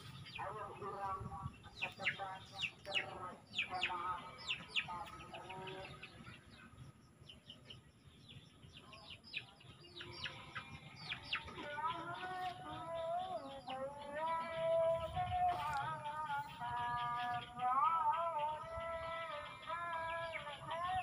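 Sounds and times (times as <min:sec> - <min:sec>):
small birds chirping: 0:00.0 - 0:21.0
background music with singing: 0:10.5 - 0:21.0.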